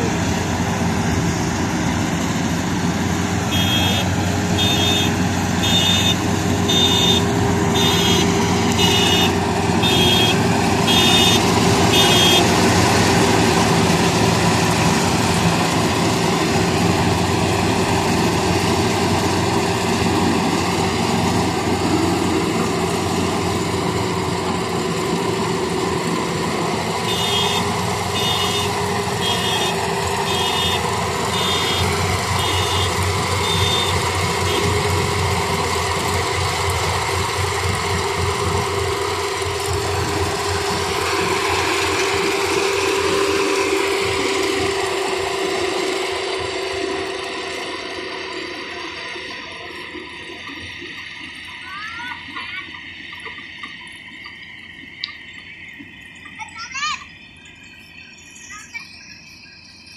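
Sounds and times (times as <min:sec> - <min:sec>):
combine harvester engine running: 0:00.0 - 0:59.9
warning beeper: 0:03.4 - 0:12.6, 0:27.0 - 0:34.8.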